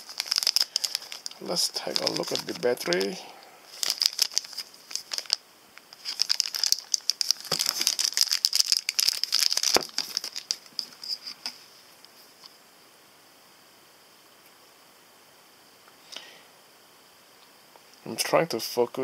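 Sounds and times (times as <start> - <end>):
plastic bag crinkling: 0.0 - 11.6.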